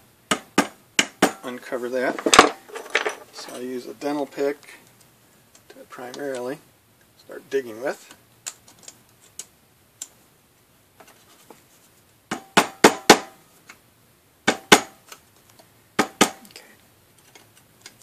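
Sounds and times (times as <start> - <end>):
metal pick clicking and scraping: 8.1 - 10.2, 17.1 - 18.0.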